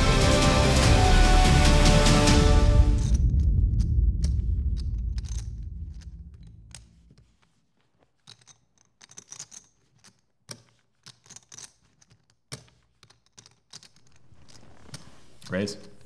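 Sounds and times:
poker chips clicking: 0:04.2 - 0:16.0.

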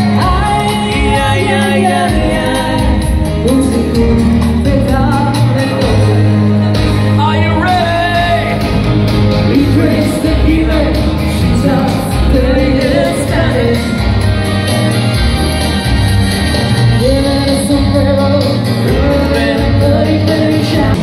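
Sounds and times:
woman singing into microphone: 0:00.0 - 0:06.4, 0:07.2 - 0:08.6, 0:09.5 - 0:14.0, 0:17.0 - 0:21.0
live band dance music: 0:00.0 - 0:21.0
steady bass line: 0:00.0 - 0:21.0.

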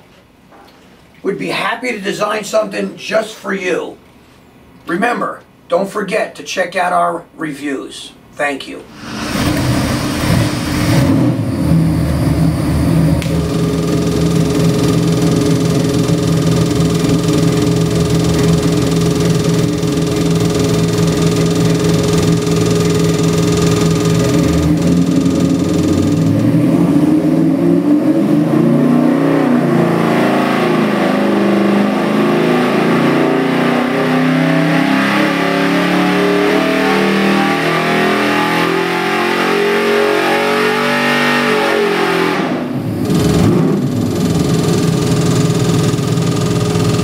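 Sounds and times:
engine revving under load: 0:08.9 - 0:47.0.

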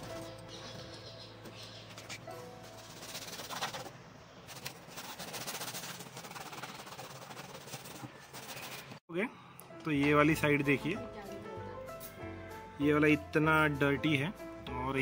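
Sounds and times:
scrubbing car interior trim: 0:04.6 - 0:08.8.

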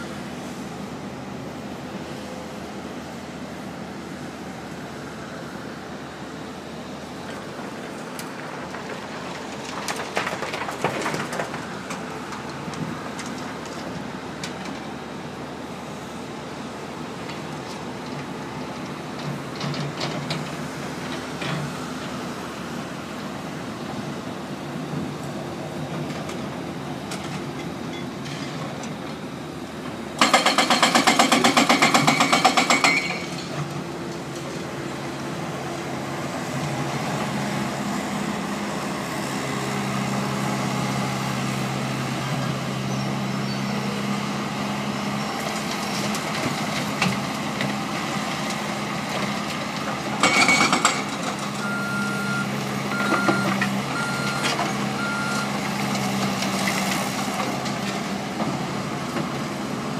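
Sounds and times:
diesel demolition machinery running: 0:00.0 - 0:59.9
reversing alarm beeping: 0:51.6 - 0:55.5.

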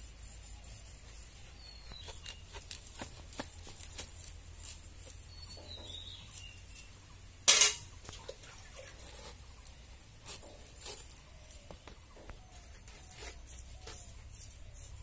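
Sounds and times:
fruit slicing clicks and scraping: 0:01.6 - 0:06.9.

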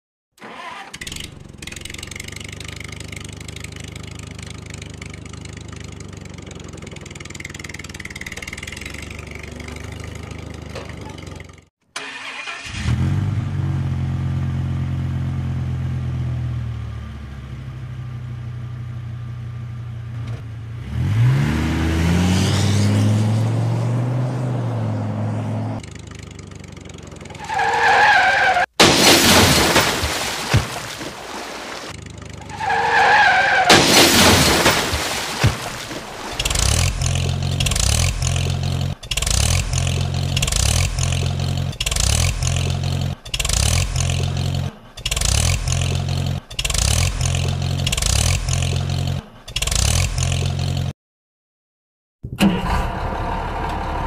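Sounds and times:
engine revving up: 0:12.0 - 0:14.2, 0:20.8 - 0:25.8, 0:36.3 - 0:50.9.

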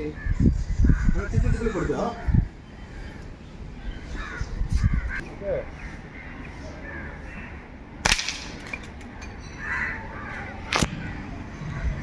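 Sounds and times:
air rifle shots: 0:08.0 - 0:08.8.

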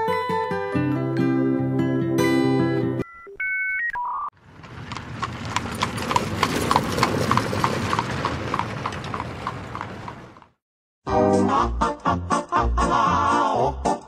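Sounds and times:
horse hooves trotting: 0:04.4 - 0:10.6.

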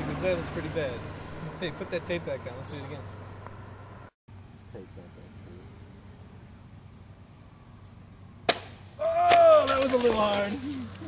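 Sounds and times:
plane hitting pavement: 0:00.0 - 0:04.1, 0:08.4 - 0:11.0
faint insect chirring: 0:03.7 - 0:09.0.

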